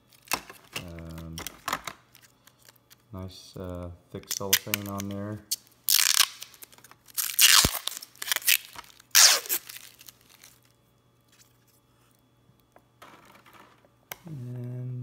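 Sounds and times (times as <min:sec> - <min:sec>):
cellophane tearing and crinkling: 0:00.0 - 0:03.0, 0:04.2 - 0:10.7.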